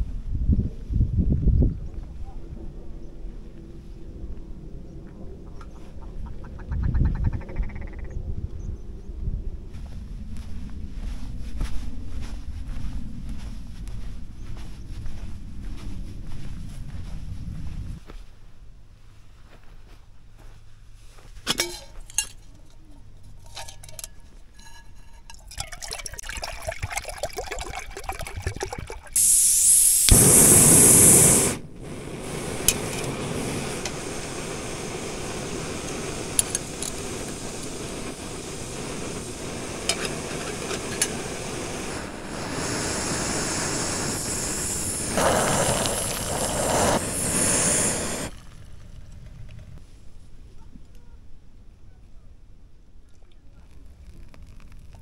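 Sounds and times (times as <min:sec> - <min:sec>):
cookware clinking: 0:21.5 - 0:22.4, 0:23.4 - 0:26.7
water pouring: 0:25.3 - 0:29.7, 0:45.0 - 0:47.4, 0:53.6 - 0:55.0
gas stove hissing: 0:28.8 - 0:48.4.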